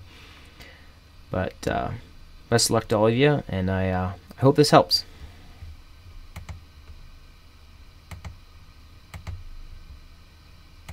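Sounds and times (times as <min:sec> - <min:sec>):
faint low hum: 0:00.0 - 0:10.9
computer mouse clicks: 0:06.3 - 0:06.6, 0:08.1 - 0:08.4, 0:09.1 - 0:09.4.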